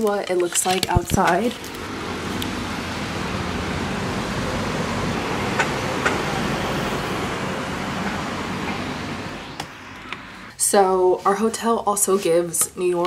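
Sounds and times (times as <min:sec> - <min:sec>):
city street traffic: 0:00.3 - 0:10.7.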